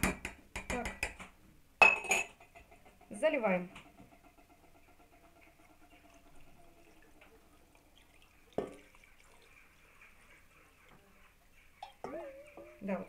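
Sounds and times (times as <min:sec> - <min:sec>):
liquid trickling and splashing: 0:04.0 - 0:13.0.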